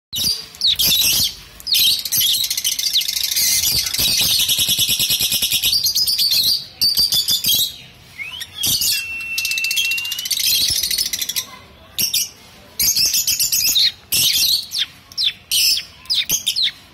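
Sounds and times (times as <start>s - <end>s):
lovebirds chirping: 0.2s - 16.9s
bird whistle: 2.2s - 11.0s.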